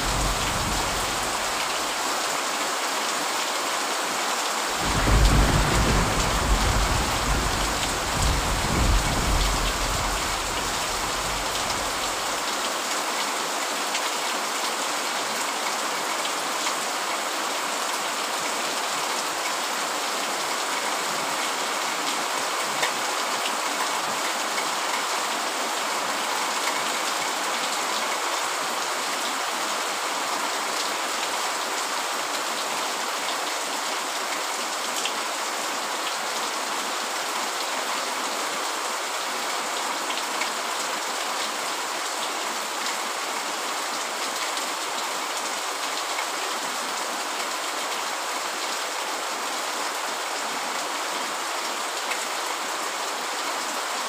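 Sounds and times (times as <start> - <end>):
low thunder rumble: 0.0 - 1.9, 4.7 - 12.4
heavy rain: 0.0 - 54.0.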